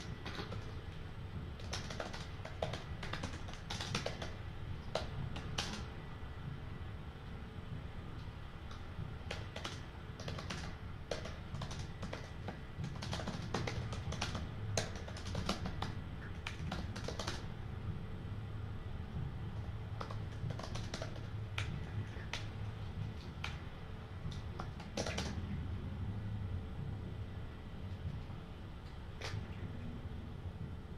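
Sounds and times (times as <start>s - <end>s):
low steady hum: 0.0s - 30.9s.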